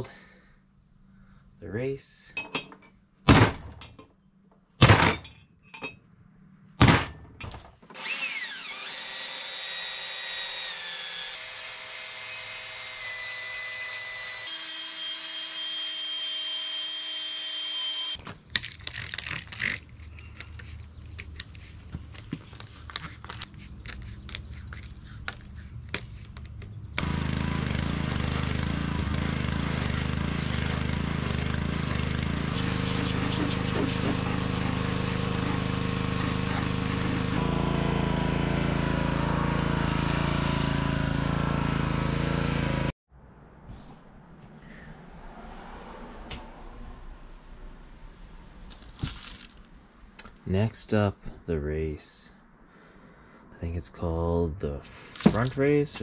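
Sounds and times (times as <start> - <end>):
hammer striking metal punch: 6.8 - 7.6
cordless drill whining: 8.0 - 18.2, 27.0 - 37.4
pressure washer engine running: 27.0 - 42.9.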